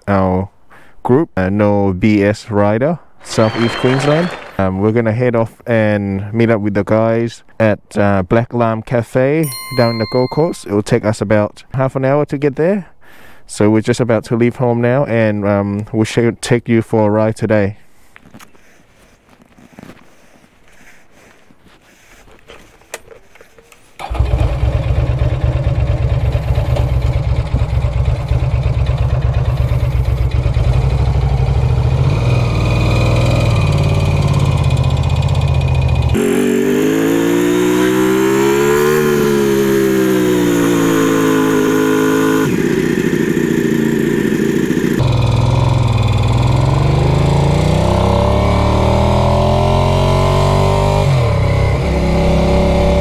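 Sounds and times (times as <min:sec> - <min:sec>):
motorcycle engine: 0:03.2 - 0:04.9, 0:24.0 - 0:53.0.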